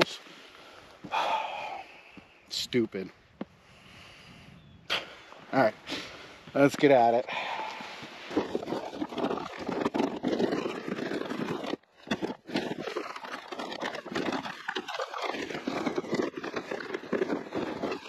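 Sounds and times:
footsteps crunching in snow: 5.2s - 18.0s
sled scraping over snow: 5.2s - 18.0s.

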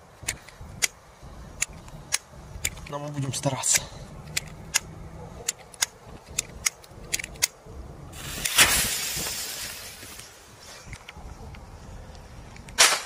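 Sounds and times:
firecracker fuses hissing: 8.1s - 10.9s.

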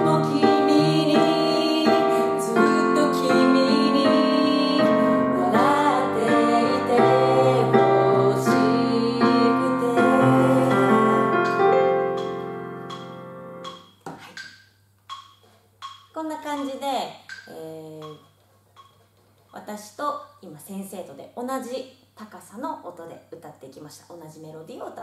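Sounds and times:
women singing in unison: 0.0s - 11.8s
keyboard piano chords: 0.0s - 14.0s.

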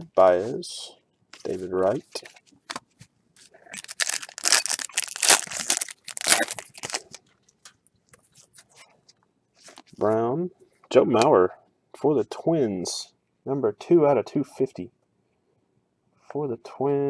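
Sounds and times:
foil wrapper tearing and crinkling: 3.7s - 7.2s.

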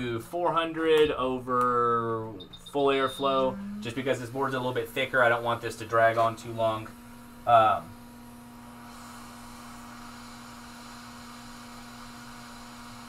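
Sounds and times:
steady hum: 0.0s - 12.3s
hot air blower hissing: 3.4s - 13.0s.

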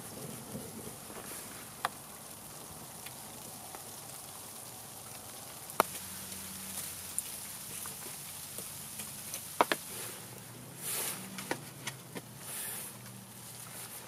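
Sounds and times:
campfire hissing and crackling: 0.0s - 14.0s
sharp fire pops: 5.6s - 10.0s.

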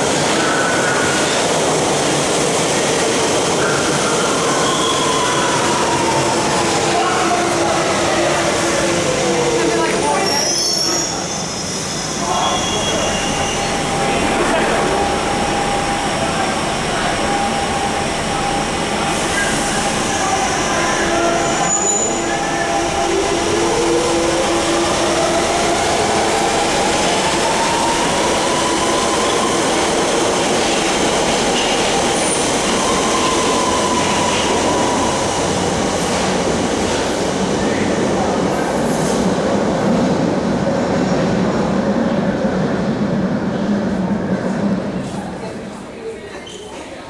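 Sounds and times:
steel wheels rumbling and squealing: 3.5s - 6.8s, 10.0s - 25.0s.

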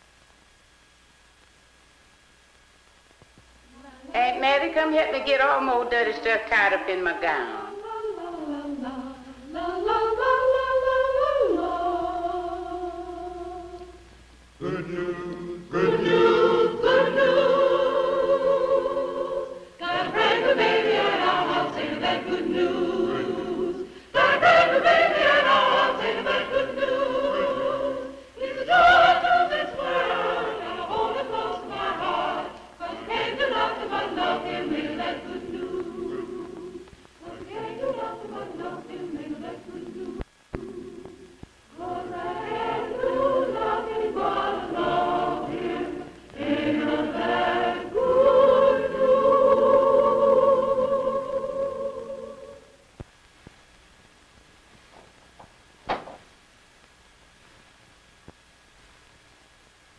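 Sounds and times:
choir singing unaccompanied: 6.9s - 52.8s.

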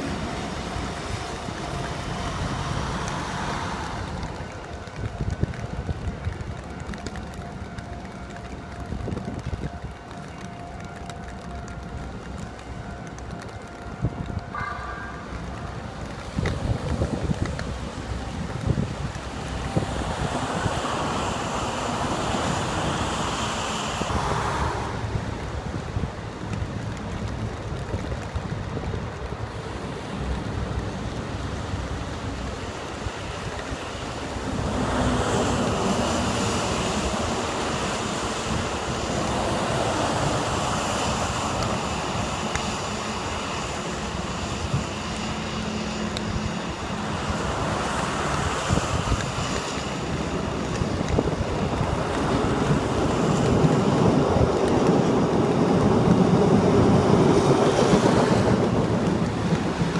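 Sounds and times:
electric train passing: 0.0s - 59.9s
traffic hissing on wet streets: 0.0s - 59.9s.

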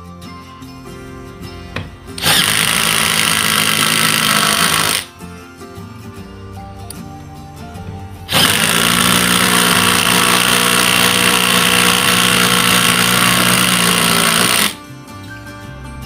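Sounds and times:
background music: 0.0s - 16.0s
impact wrench hammering: 1.8s - 5.1s, 8.3s - 14.8s.

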